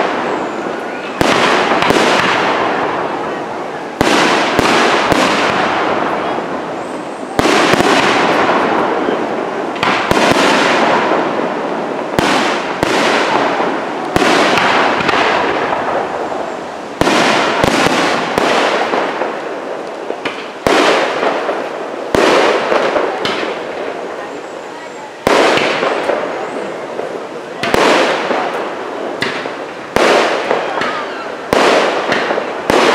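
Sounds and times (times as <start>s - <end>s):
rolling echo of bangs: 7.4s - 16.1s
firework shells bursting: 25.2s - 32.9s.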